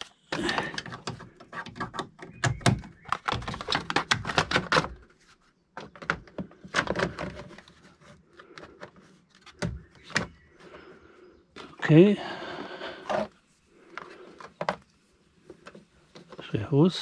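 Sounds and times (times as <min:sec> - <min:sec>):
plastic parts clicking and knocking: 0:00.0 - 0:10.4, 0:13.0 - 0:16.6.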